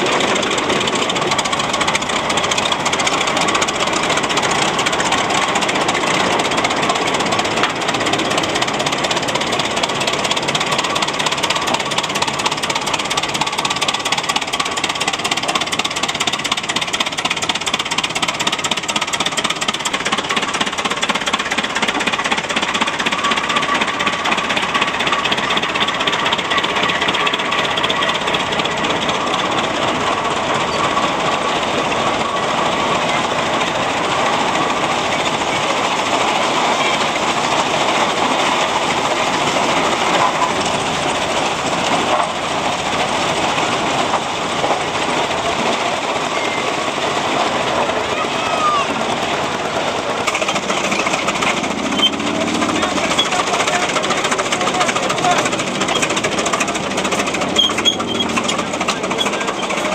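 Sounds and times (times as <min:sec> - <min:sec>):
antique tractors driving past: 0:00.0 - 0:59.9.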